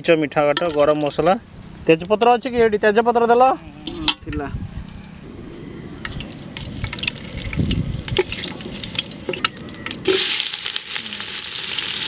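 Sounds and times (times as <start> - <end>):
hot oil crackling and popping: 6.0 - 12.0
onions sizzling in oil: 6.5 - 12.0.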